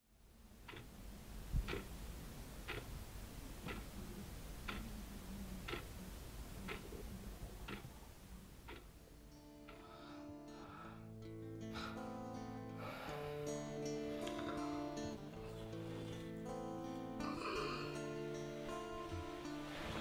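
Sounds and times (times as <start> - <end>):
clock ticking: 0.6 - 10.6
guitar music: 9.0 - 20.0.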